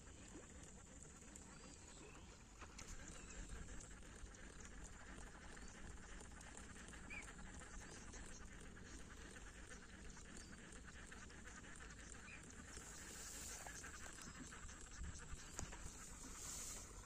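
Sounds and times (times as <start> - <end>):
faint bird chirps: 6.9 - 17.0.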